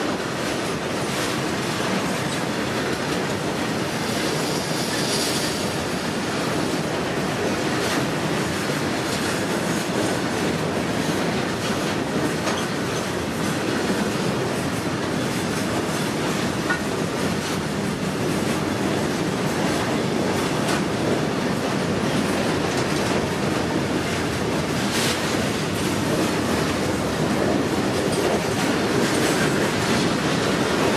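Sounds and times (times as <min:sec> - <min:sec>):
freight wagons rumbling on rails: 0:00.0 - 0:30.9
wheels clicking over rail joints: 0:07.7 - 0:18.7.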